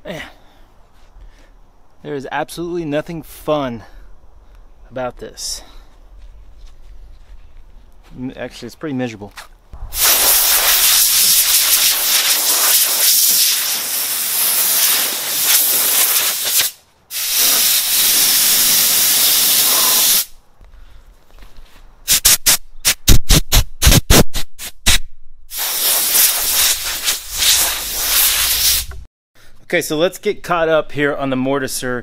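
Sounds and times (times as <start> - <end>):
sandblasting gun air hiss: 9.8 - 20.3, 22.1 - 23.0, 24.6 - 29.1
short loud air bursts: 9.8 - 20.4, 22.1 - 29.1.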